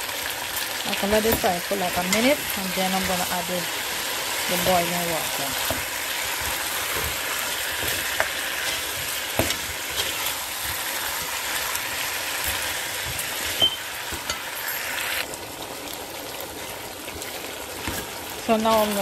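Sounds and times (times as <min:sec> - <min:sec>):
curry sizzling in oil: 0:00.0 - 0:19.0
spatula scraping a pot: 0:04.1 - 0:14.9.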